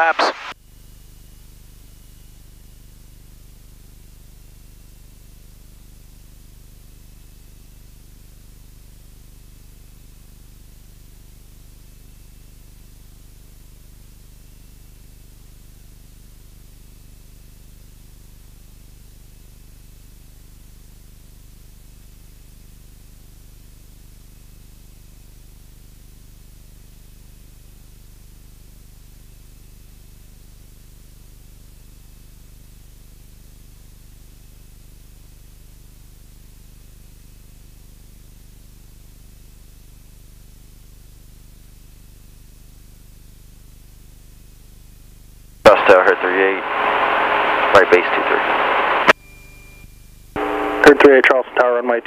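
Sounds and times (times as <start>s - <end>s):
faint high whine: 0.0s - 0.6s, 45.7s - 52.0s
intercom hiss: 0.0s - 0.6s, 45.7s - 49.1s, 50.4s - 52.0s
muffled aircraft engine drone: 45.7s - 49.1s, 50.4s - 52.0s.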